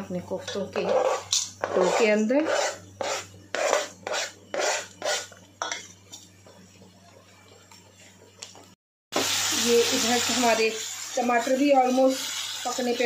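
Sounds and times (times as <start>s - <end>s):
chopping board scraping a metal bowl: 0.7s - 5.4s.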